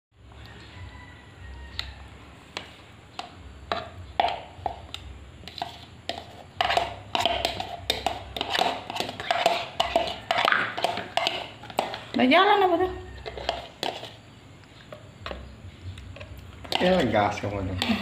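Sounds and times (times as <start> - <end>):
spoon scraping plastic container: 5.4 - 14.2, 16.1 - 17.5.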